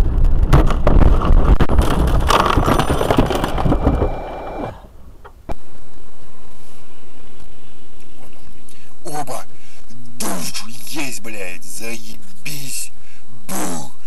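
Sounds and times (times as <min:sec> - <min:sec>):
steady noise: 0:00.0 - 0:14.0
car crashing through bushes: 0:00.5 - 0:04.9.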